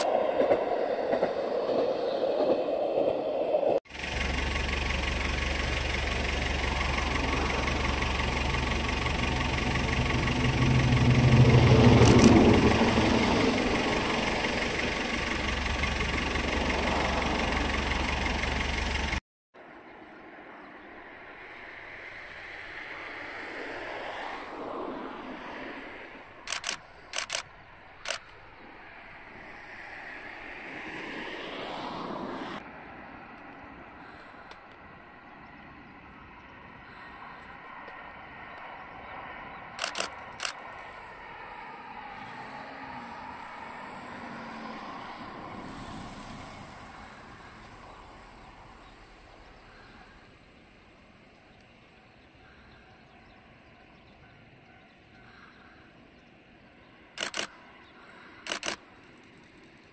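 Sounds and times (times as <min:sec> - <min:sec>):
diesel railcar rumbling past: 0:00.0 - 0:56.1
distant passing train: 0:00.0 - 0:59.9
sharp clicks: 0:05.6 - 0:13.0, 0:26.4 - 0:28.4, 0:39.8 - 0:40.6, 0:57.2 - 0:57.6, 0:58.4 - 0:59.9.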